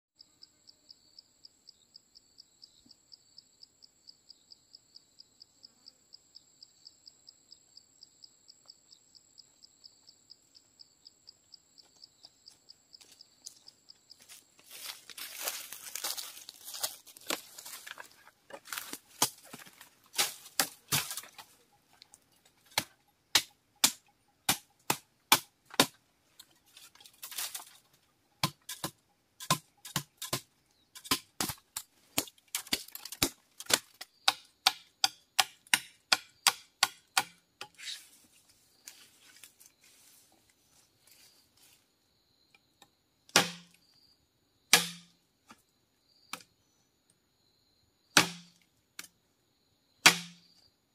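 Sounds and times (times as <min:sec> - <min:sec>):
machete chopping bamboo: 0:18.8 - 0:21.4, 0:22.6 - 0:26.0, 0:28.4 - 0:37.8, 0:43.3 - 0:43.8, 0:44.7 - 0:45.2, 0:48.2 - 0:49.1, 0:50.0 - 0:50.5.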